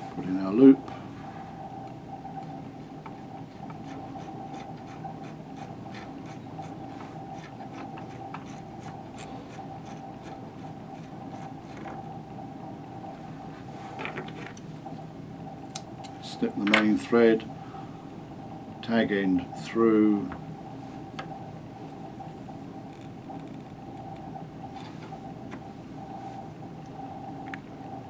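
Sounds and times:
faint steady hum: 0.0 - 28.0
thread rubbing while wound: 3.8 - 12.0.

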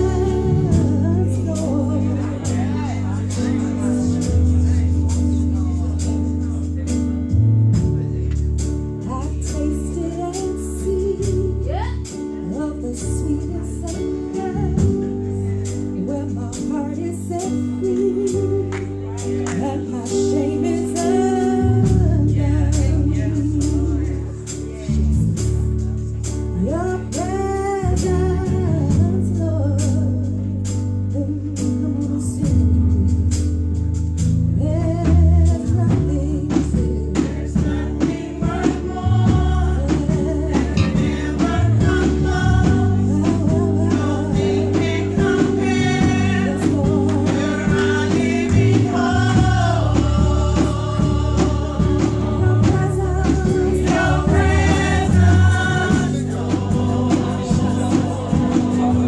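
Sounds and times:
women singing gospel: 0.0 - 4.8, 9.1 - 25.2, 34.6 - 59.0
low bass notes: 0.0 - 59.0.

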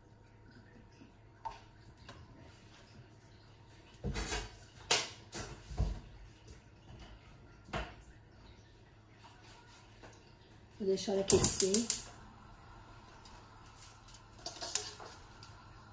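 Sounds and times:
low steady hum: 5.8 - 15.9.

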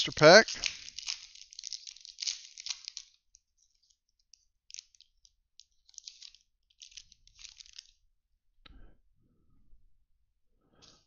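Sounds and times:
foil wrapper crinkling: 0.0 - 8.0.

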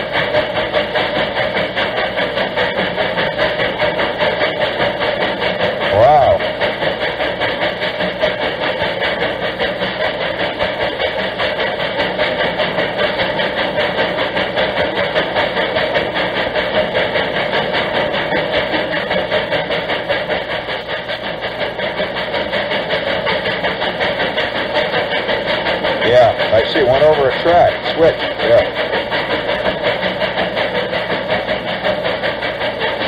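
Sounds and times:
steam locomotive chuffing: 0.0 - 33.0.

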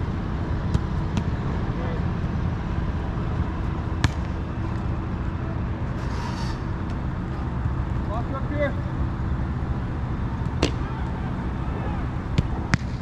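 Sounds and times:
soccer ball kicked thud: 0.6 - 1.4, 4.0 - 4.3, 12.4 - 13.0.

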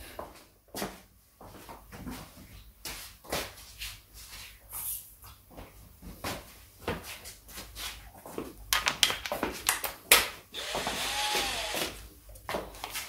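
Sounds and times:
cordless impact driver running: 10.5 - 12.0.

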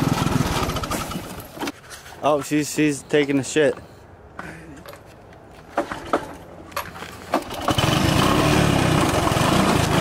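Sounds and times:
small engine running: 7.6 - 10.0.

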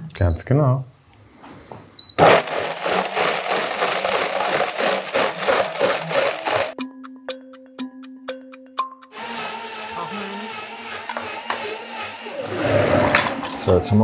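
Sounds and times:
blender running at full speed: 2.2 - 6.8, 9.1 - 13.4.

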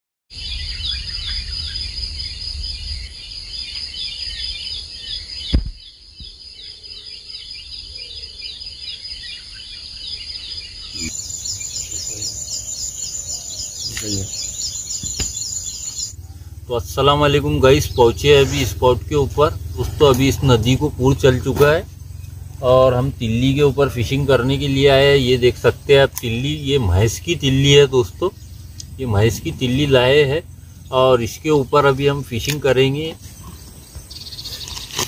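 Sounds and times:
birds: 0.3 - 35.0
insects chirping: 0.3 - 35.0
sharp knock: 5.5 - 6.3, 15.0 - 15.5
low rumble: 11.0 - 34.4.

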